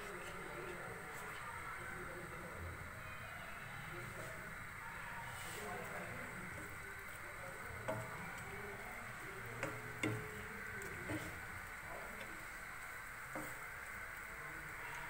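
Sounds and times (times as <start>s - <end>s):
onions sizzling in hot oil: 0.0s - 15.0s
wooden spatula knocking against pan: 7.8s - 11.4s.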